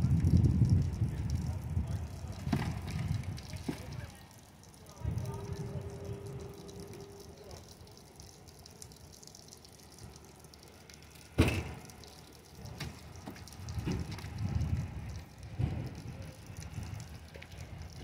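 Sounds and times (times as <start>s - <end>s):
light rain hissing: 0.0s - 18.0s
dull wet thumps and sloshing: 2.3s - 4.1s, 10.9s - 18.0s.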